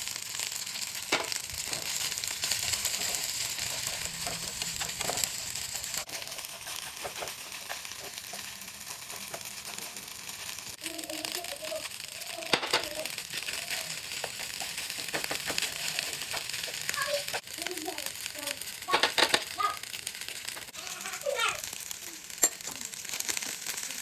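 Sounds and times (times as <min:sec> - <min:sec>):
rice sizzling in a frying pan: 0:00.0 - 0:24.0
wooden spatula scraping pan: 0:01.1 - 0:11.4, 0:12.5 - 0:17.5.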